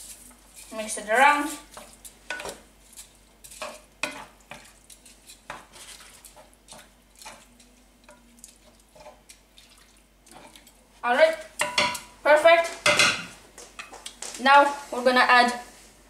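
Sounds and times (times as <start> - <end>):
wooden spatula scraping pan: 0.0 - 7.5, 8.1 - 9.2.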